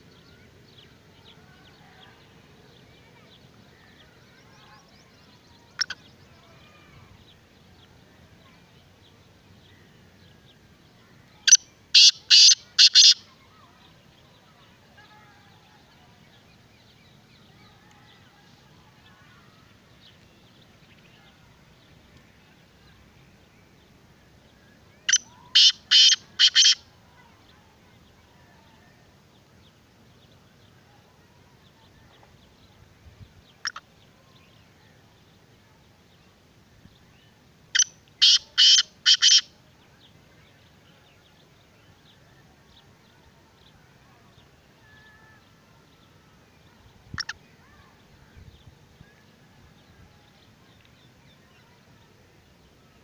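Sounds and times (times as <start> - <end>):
bird calling loud notes: 11.5 - 13.2, 25.1 - 26.8, 37.8 - 39.5.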